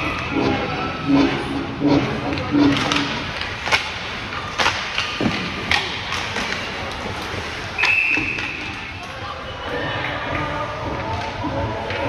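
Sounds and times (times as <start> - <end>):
hockey sticks and puck knocking: 2.3 - 9.2
high whistle blast: 7.8 - 8.6.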